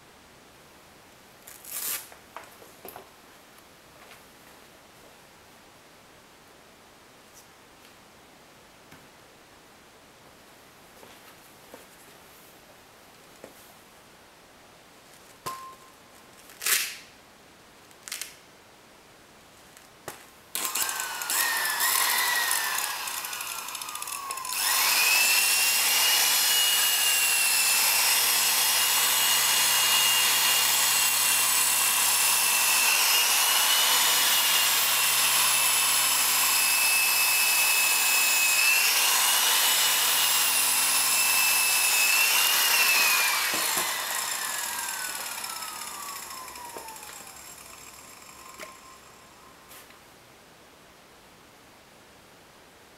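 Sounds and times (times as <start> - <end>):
electric polisher whining: 20.6 - 49.2.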